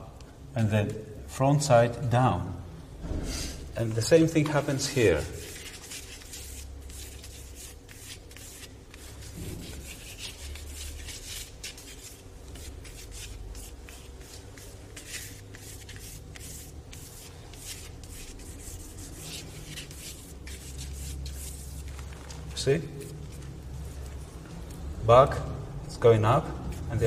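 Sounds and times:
drawing tool scratching on paper: 5.4s - 21.9s.

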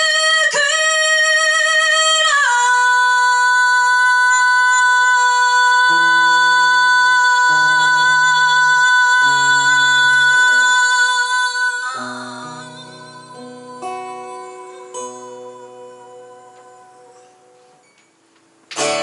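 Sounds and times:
acoustic rock band music: 12.0s - 19.0s.

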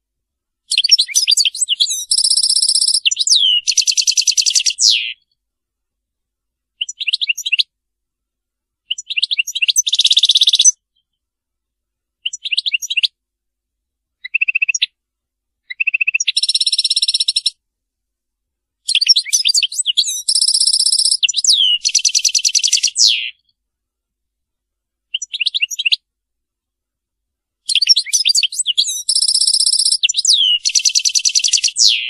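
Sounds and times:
goldfinch twittering song: 0.7s - 5.2s, 8.9s - 10.7s, 18.9s - 23.4s, 27.7s - 32.0s.

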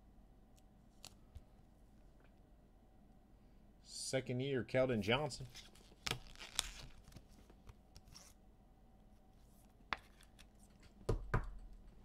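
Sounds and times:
cards rustling and sliding: 5.5s - 8.4s.

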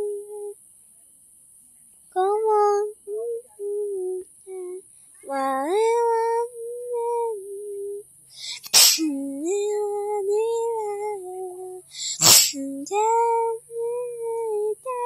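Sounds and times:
high voice humming a tune: 0.0s - 0.6s, 2.2s - 15.0s
loud breathy sneeze-like bursts: 8.6s - 9.0s, 12.2s - 12.6s.

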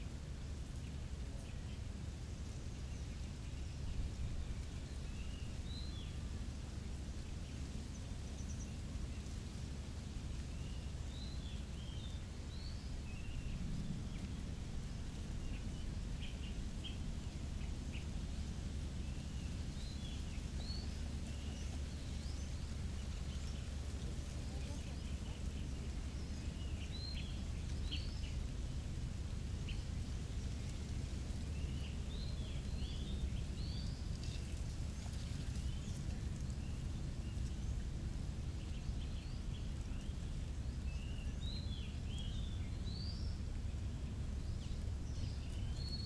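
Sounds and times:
low outdoor rumble: 0.0s - 46.0s
small birds chirping: 10.4s - 46.0s.

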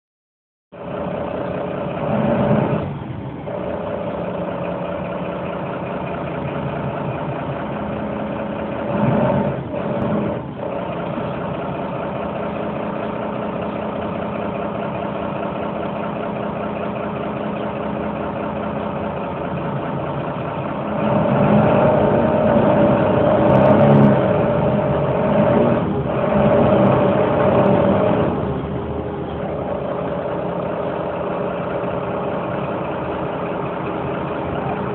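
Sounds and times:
vehicle engine and road hum: 0.7s - 34.9s.

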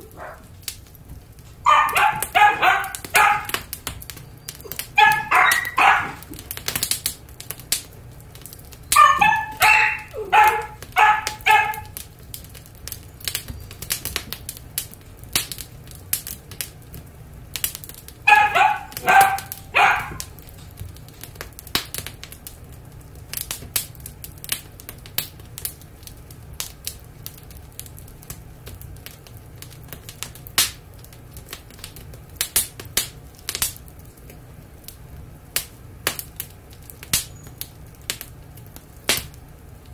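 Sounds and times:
wood fire crackling and popping: 0.0s - 39.9s
dog barking: 0.1s - 0.5s, 1.6s - 3.6s, 4.6s - 6.3s, 8.9s - 12.0s, 18.3s - 20.3s.

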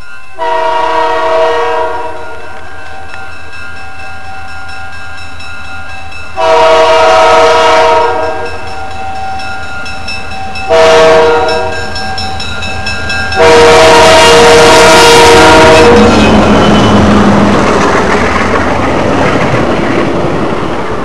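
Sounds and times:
crossing bell ringing: 0.0s - 17.2s
train air horn blasts: 0.4s - 2.6s, 6.4s - 8.6s, 10.7s - 11.8s, 13.4s - 16.4s.

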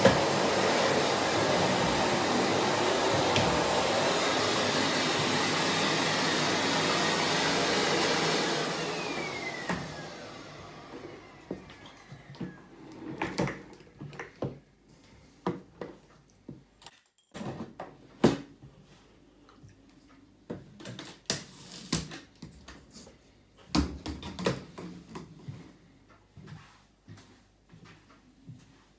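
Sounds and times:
vacuum cleaner knocking on tiles: 0.0s - 7.5s.

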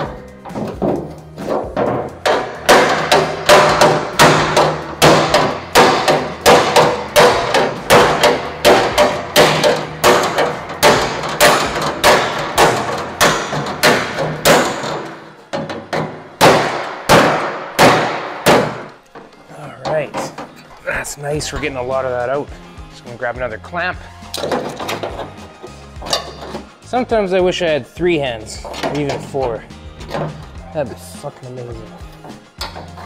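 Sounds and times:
metal panel ringing: 0.0s - 20.6s
hammer striking sheet steel: 0.5s - 19.0s.

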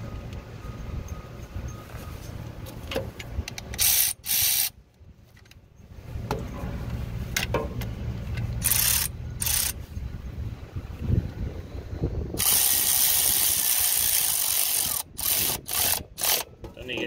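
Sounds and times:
low steady rumble: 0.0s - 17.0s
hand ratchet clicking: 3.5s - 4.7s, 8.6s - 9.8s, 12.4s - 16.5s.

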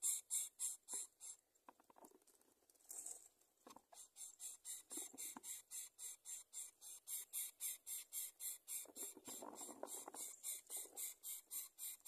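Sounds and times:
chicks hissing: 0.0s - 1.4s, 3.9s - 12.0s.

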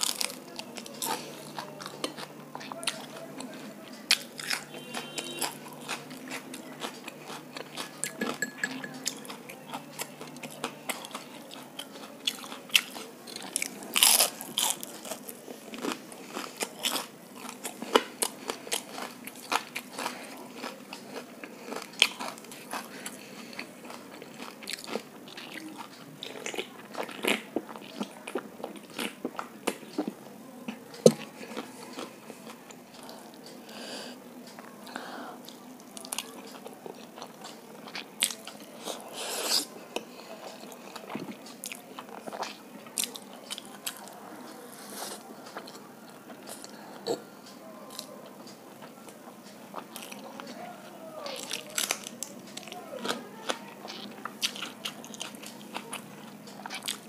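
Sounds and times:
crunching crispy fried food: 0.0s - 8.4s, 9.8s - 30.2s, 51.2s - 57.0s.

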